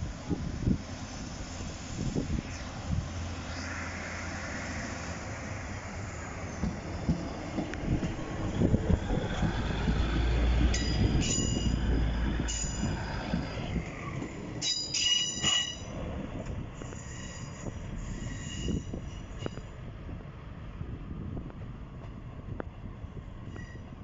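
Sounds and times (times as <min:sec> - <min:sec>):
diesel train rumble: 0:00.0 - 0:24.0
train wheels squealing: 0:10.7 - 0:16.0, 0:16.8 - 0:19.7, 0:23.4 - 0:23.9.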